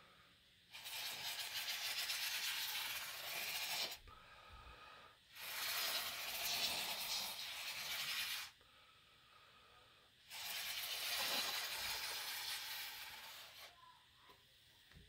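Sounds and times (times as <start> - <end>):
glue squeezed from nozzle bottle: 0.7 - 4.0, 5.3 - 8.6, 10.3 - 13.7.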